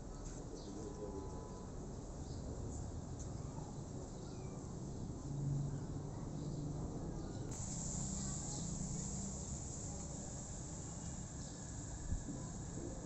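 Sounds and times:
high-pitched insect drone: 0:07.5 - 0:13.0.

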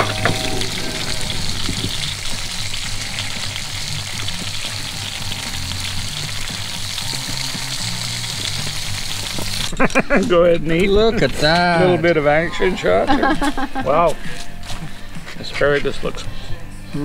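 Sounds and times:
ribs sizzling on a grill: 0:00.1 - 0:12.1.

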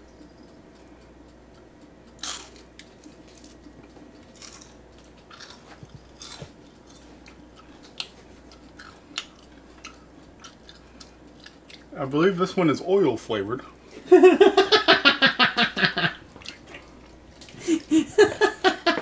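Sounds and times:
potato chip crunching: 0:02.2 - 0:03.6, 0:04.3 - 0:11.9.

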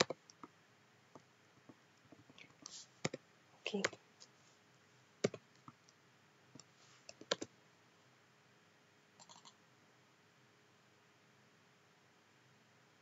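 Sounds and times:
computer keystrokes: 0:06.6 - 0:07.5.

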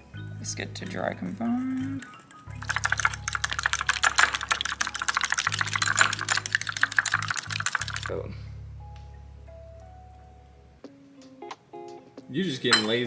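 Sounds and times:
fork whisking eggs in glass bowl: 0:00.9 - 0:08.1.

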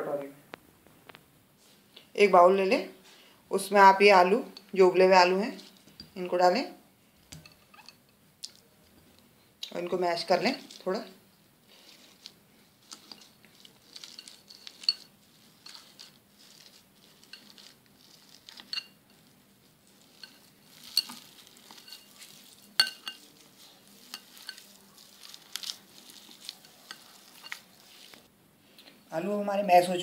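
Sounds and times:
potatoes squishing: 0:09.6 - 0:28.3.

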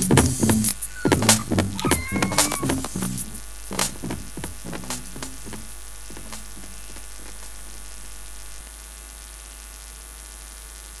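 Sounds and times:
song beats: 0:00.0 - 0:08.6
high hiss: 0:00.0 - 0:08.7
low mains hum: 0:00.0 - 0:11.0.

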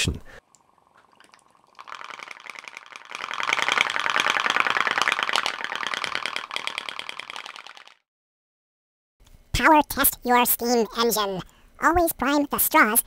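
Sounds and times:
pop-pop steam engine popping: 0:01.8 - 0:07.9.

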